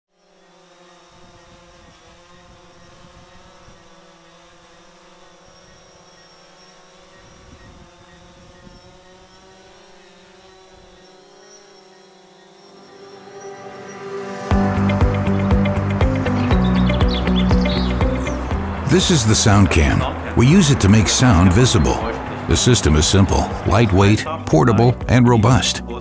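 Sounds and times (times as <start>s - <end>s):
drone buzzing: 0.1s - 26.0s
wind rumble on microphone: 7.2s - 9.1s.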